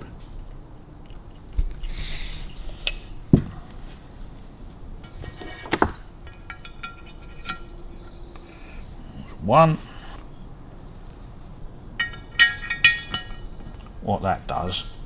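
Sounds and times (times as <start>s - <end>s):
metallic clicks of engine parts: 5.0s - 8.5s, 12.0s - 14.0s.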